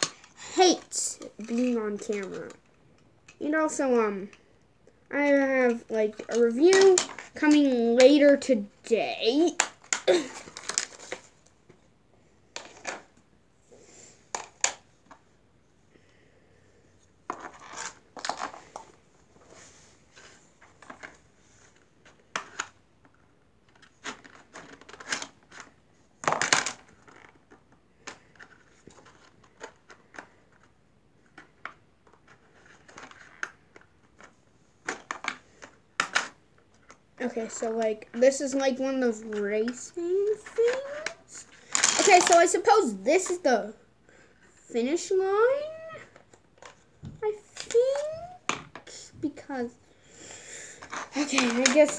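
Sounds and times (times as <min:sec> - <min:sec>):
plastic clatter: 0:09.6 - 0:11.4, 0:17.3 - 0:19.0, 0:22.0 - 0:37.0, 0:39.2 - 0:42.6, 0:50.8 - 0:51.9
plastic toy pieces clicking: 0:40.3 - 0:42.6.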